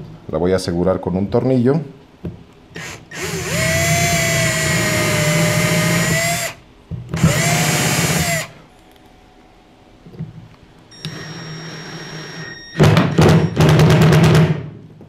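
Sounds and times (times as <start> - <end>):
cordless drill motor whine: 2.8 - 6.6, 7.2 - 8.6, 10.9 - 12.8.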